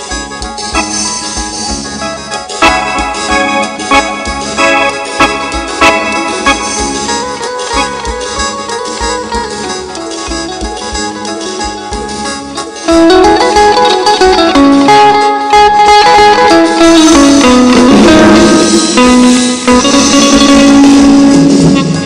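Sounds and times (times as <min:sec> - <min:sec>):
mouth organ long reedy notes: 0:00.0 - 0:10.0, 0:15.8 - 0:22.0
bass: 0:00.0 - 0:22.0
plucked string melody: 0:00.0 - 0:22.0
drum beat: 0:02.5 - 0:09.5, 0:16.8 - 0:22.0.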